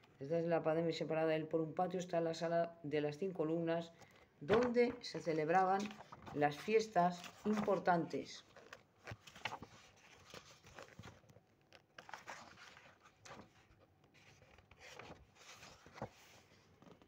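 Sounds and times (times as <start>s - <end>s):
faint rustles and clicks: 4.0s - 17.0s.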